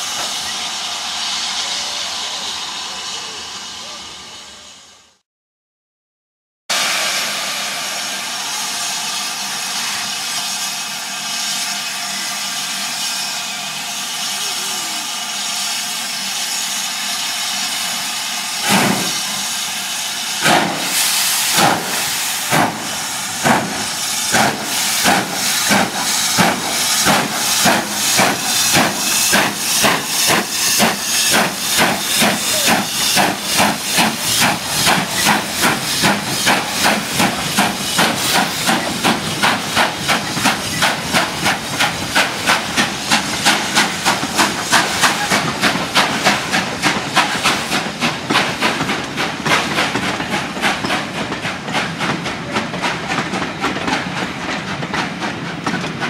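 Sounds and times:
steam locomotive hissing steam: 0.0 - 5.2, 6.7 - 56.0
locomotive exhaust chuffs: 17.2 - 56.0.

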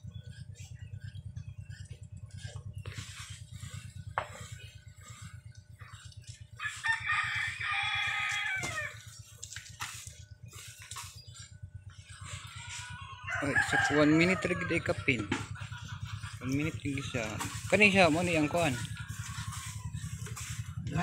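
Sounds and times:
potter's wheel motor pulsing: 0.0 - 21.0
rooster crowing: 6.6 - 9.2, 12.1 - 20.8.

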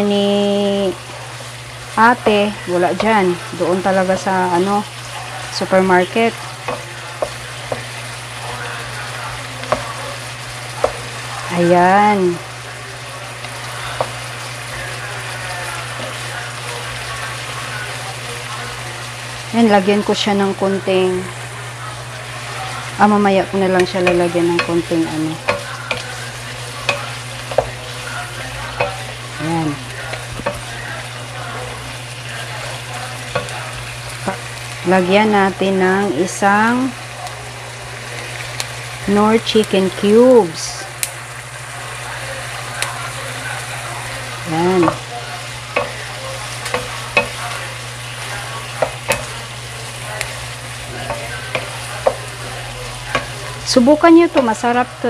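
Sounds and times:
chicken sizzling in frying pan: 0.0 - 55.0
spatula tapping and scraping pan: 6.6 - 8.0, 9.6 - 10.0, 10.8 - 11.1, 23.8 - 28.0, 33.2 - 33.6, 45.7 - 47.6, 48.2 - 49.4, 50.2 - 52.4, 53.1 - 53.4
spatula knocking against pan: 23.8 - 26.1, 46.6 - 47.4, 48.8 - 49.3.

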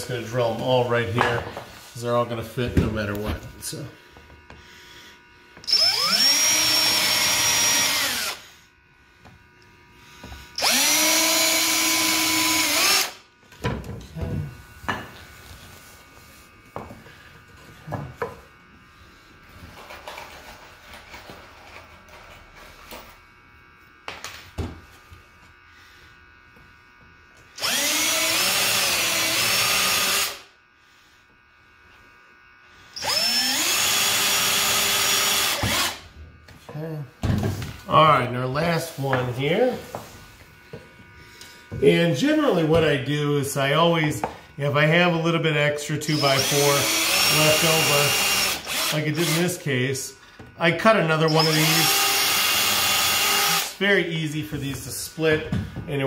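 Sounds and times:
cordless drill whining: 5.6 - 8.5, 10.3 - 13.2, 27.5 - 30.5, 32.9 - 36.0, 46.0 - 49.6, 51.1 - 53.8.

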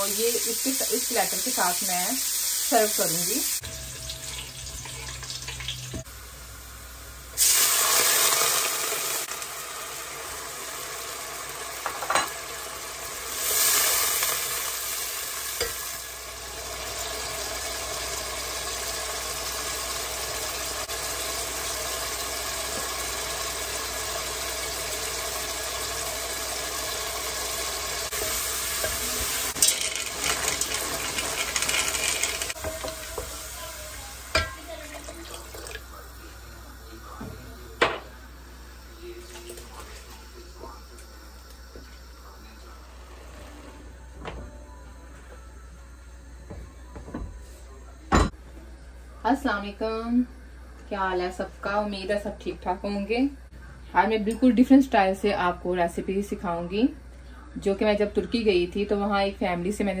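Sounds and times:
vegetables sizzling in oil: 0.0 - 36.9.

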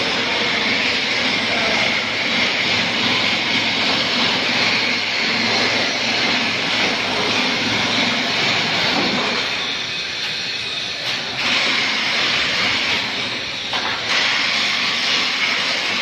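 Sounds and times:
loud steady rushing noise: 0.0 - 16.0.

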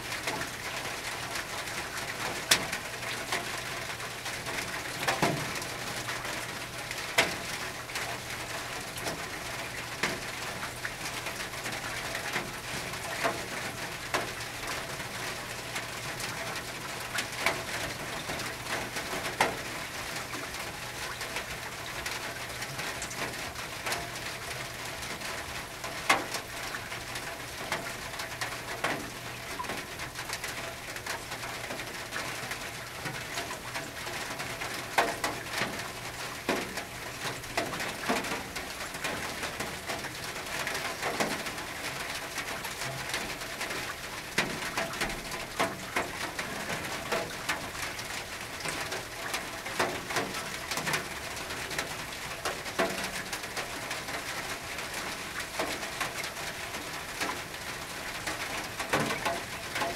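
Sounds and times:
rain on a tin roof: 0.0 - 59.9.

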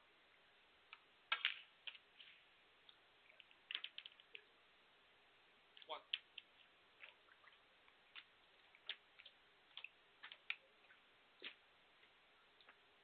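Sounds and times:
faint clicks and taps: 5.7 - 12.8.

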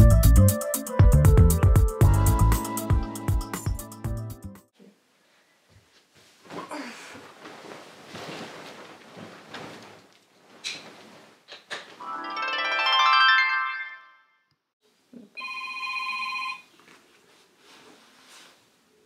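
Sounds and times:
soft rustling: 4.8 - 12.0, 16.7 - 19.0
musical chord: 12.0 - 14.4
phone ringtone: 15.4 - 16.6.

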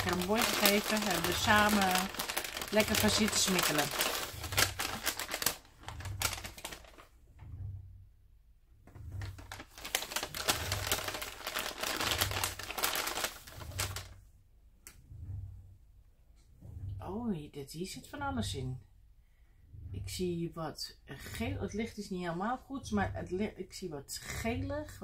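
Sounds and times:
wrapping crackling and rustling: 0.0 - 7.2, 9.0 - 14.2.

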